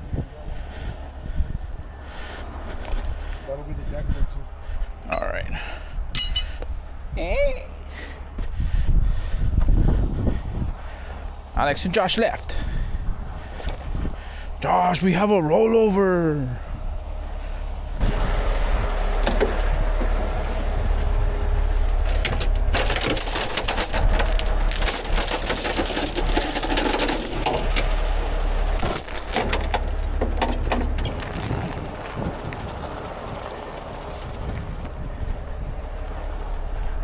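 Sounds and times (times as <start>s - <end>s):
steady low rumble: 0.0s - 37.0s
steel chain clanking: 6.1s - 6.6s, 22.0s - 28.1s, 28.8s - 35.0s.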